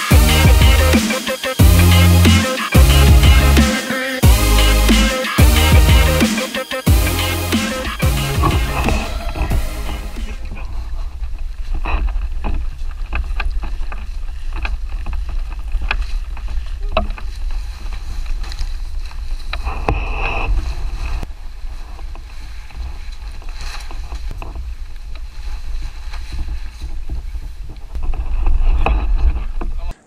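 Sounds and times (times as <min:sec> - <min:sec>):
brief rustle: 0:10.2 - 0:30.0.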